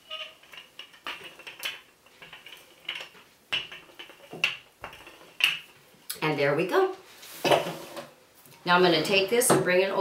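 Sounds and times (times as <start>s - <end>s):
rolling pin rolling dough: 0.0s - 5.9s.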